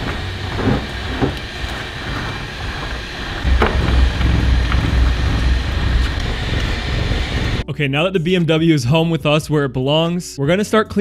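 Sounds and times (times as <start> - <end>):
low rumble of car rolling: 0.0 - 7.6.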